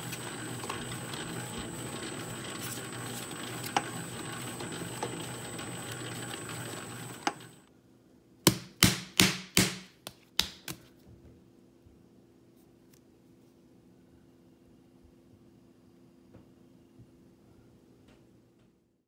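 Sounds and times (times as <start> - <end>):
dough mixer whining and humming: 0.0 - 7.7
hand slapping dough: 8.5 - 10.9.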